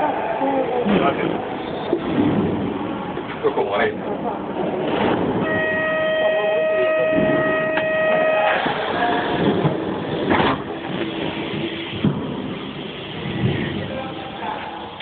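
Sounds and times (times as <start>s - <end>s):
locomotive running noise: 1.0s - 15.0s
locomotive horn: 5.4s - 9.0s.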